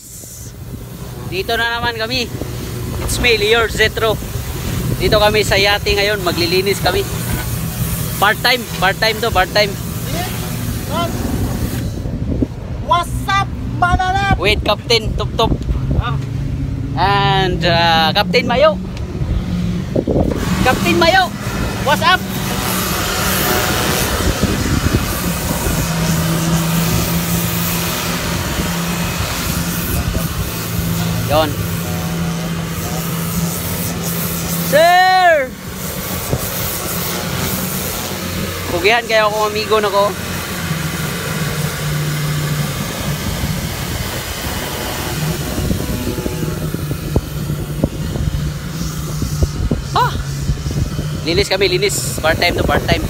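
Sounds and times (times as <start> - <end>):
pressure washer humming: 0.0 - 15.5, 16.2 - 53.0
wind buffeting microphone: 0.0 - 34.7, 35.5 - 39.3, 40.0 - 53.0.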